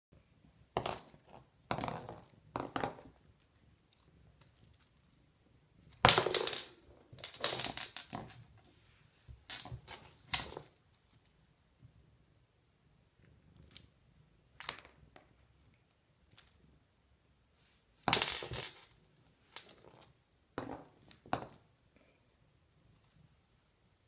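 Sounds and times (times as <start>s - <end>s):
wand toy rustling on wooden floor: 5.8s - 11.3s.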